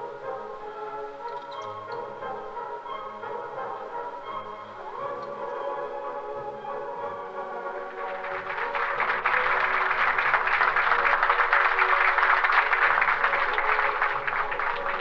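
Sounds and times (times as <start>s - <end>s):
background music: 0.0s - 15.0s
crowd applauding: 7.5s - 15.0s.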